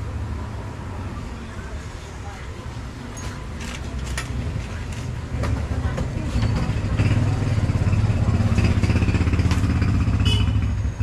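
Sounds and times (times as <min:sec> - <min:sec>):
motorcycle engine running: 0:06.6 - 0:11.0.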